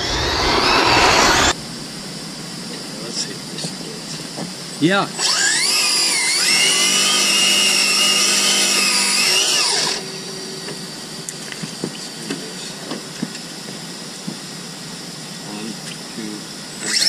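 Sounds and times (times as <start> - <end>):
electric motor high-pitched whine: 0.0 - 1.6, 5.2 - 12.7, 13.8 - 17.0.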